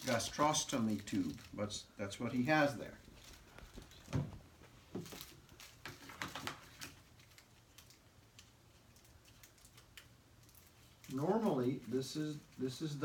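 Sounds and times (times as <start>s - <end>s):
small clicks of packaging: 0.0s - 1.6s, 5.0s - 12.6s
soft rustles of packaging: 0.0s - 13.0s.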